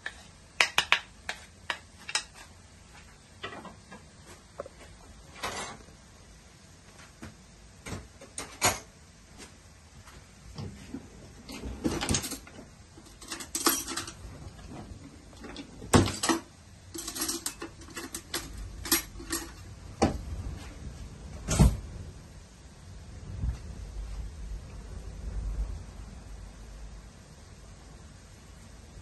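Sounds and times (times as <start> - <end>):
kitchen clicks and taps: 0.0 - 2.4.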